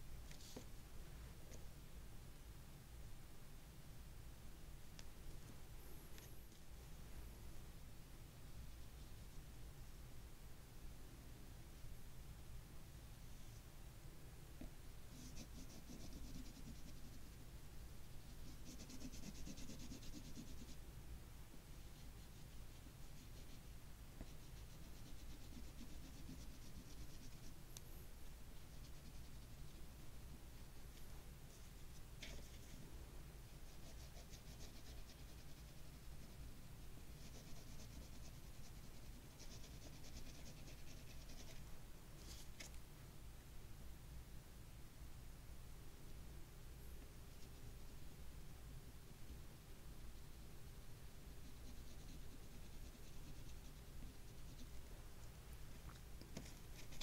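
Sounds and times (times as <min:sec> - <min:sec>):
oil pastel scratching paper: 0:15.2 - 0:17.4, 0:18.4 - 0:20.8, 0:24.2 - 0:27.5, 0:33.6 - 0:41.6, 0:51.4 - 0:54.8, 0:56.3 - 0:57.0.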